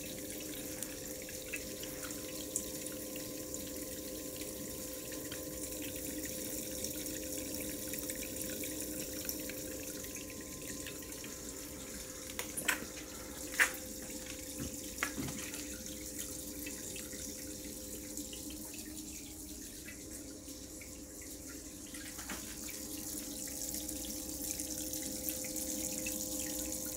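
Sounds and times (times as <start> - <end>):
steady hum: 0.0 - 26.9
water running and splashing: 4.2 - 24.7.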